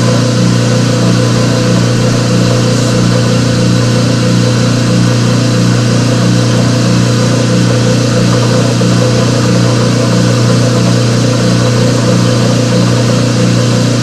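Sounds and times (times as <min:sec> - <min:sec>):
electric motor humming: 0:00.0 - 0:14.0.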